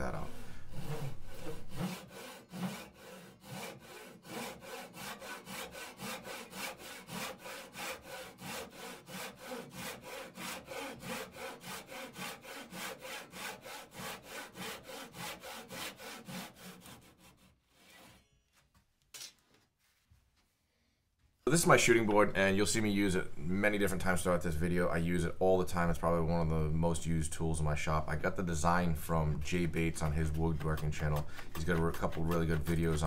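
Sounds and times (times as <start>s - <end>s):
hand saw cutting wood: 0.0s - 18.3s, 28.6s - 33.0s.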